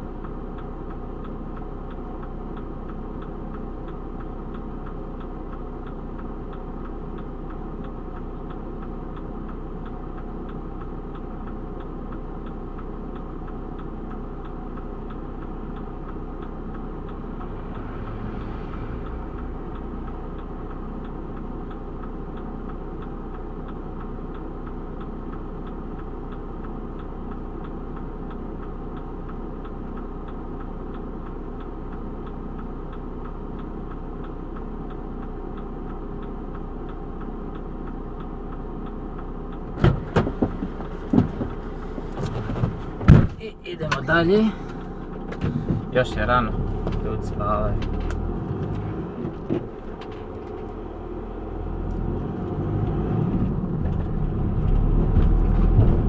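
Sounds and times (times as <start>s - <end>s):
van engine idling: 0.0s - 56.0s
car passing close by: 17.1s - 20.6s.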